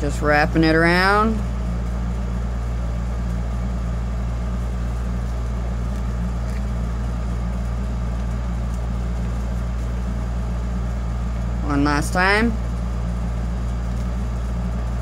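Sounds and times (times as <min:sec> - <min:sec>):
low hum: 0:00.0 - 0:15.0.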